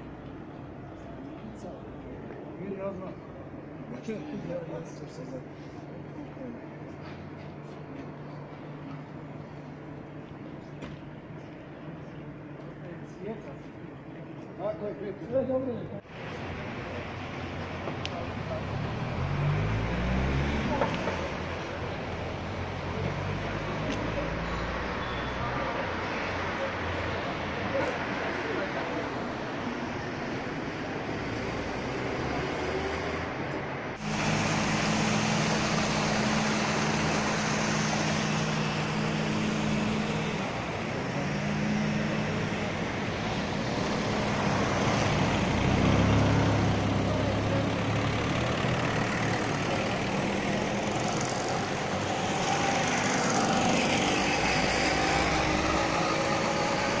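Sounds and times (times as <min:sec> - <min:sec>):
road noise: 0:00.0 - 0:57.0
car and truck engines passing: 0:16.1 - 0:57.0.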